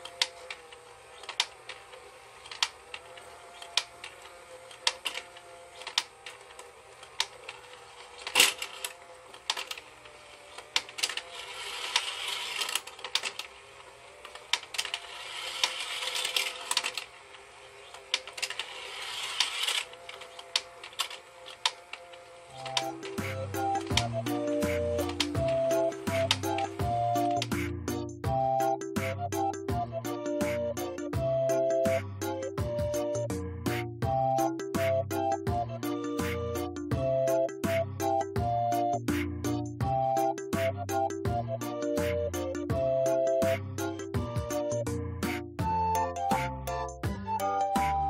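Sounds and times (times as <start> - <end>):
sharp plastic clicks: 0.0 - 26.6
toy motor hum: 0.0 - 45.0.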